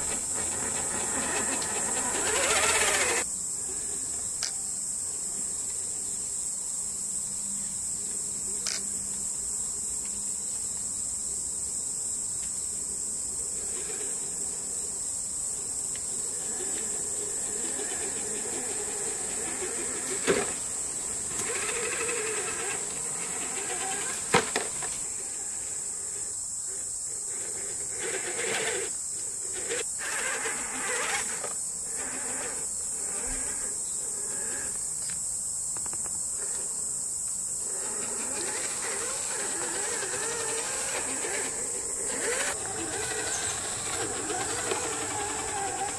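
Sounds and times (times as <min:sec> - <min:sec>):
electric motor whirring: 0:00.0 - 0:03.3, 0:15.9 - 0:26.2, 0:27.4 - 0:34.8, 0:37.5 - 0:45.9
insects buzzing: 0:00.0 - 0:45.9.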